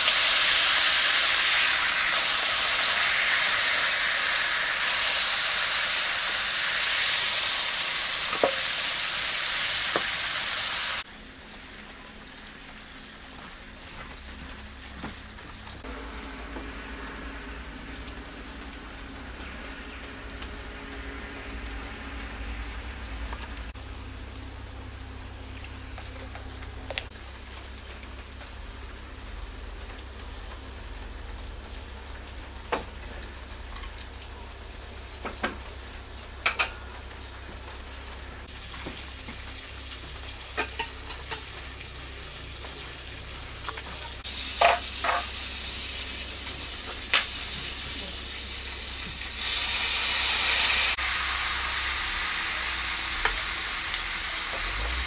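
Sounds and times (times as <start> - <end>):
frying pan sizzling: 0.0 - 55.0
clinks of bowls and jars: 40.5 - 41.5.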